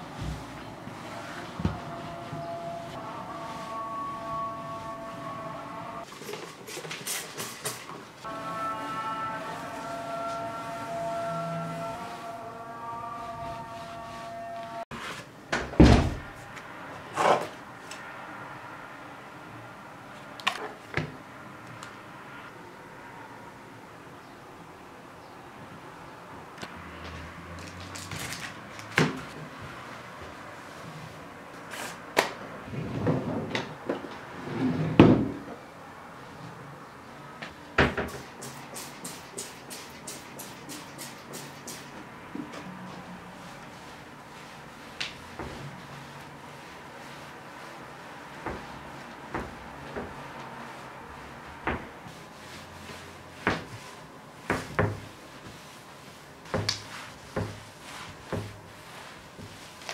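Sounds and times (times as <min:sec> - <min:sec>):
drawer sliding scrapes: 0:17.1 - 0:17.6, 0:32.6 - 0:35.5.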